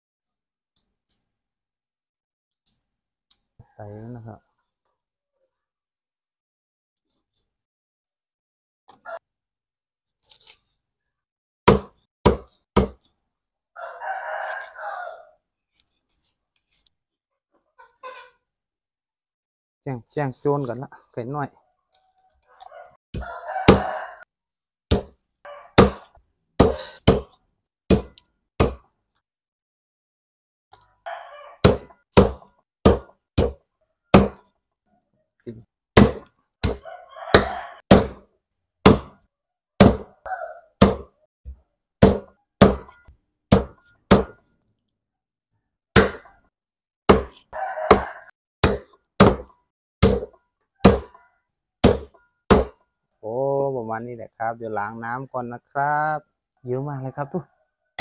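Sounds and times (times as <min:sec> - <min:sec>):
cleaver chopping on wooden block: 0:11.7 - 0:13.1, 0:23.2 - 0:23.9, 0:24.9 - 0:25.2, 0:25.8 - 0:28.8, 0:31.6 - 0:34.4, 0:36.0 - 0:38.2, 0:38.8 - 0:39.2, 0:39.8 - 0:40.1, 0:40.8 - 0:41.1, 0:42.0 - 0:44.4, 0:46.0 - 0:46.3, 0:47.1 - 0:51.2, 0:51.8 - 0:52.8
rooster crowing: 0:13.7 - 0:15.4, 0:21.9 - 0:24.3, 0:25.4 - 0:26.2, 0:31.0 - 0:32.0, 0:36.7 - 0:37.9, 0:40.0 - 0:40.8, 0:47.2 - 0:48.4.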